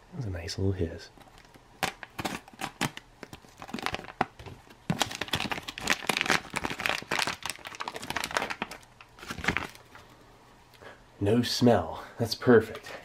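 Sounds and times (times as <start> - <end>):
foil pouch crinkling: 1.2 - 10.0.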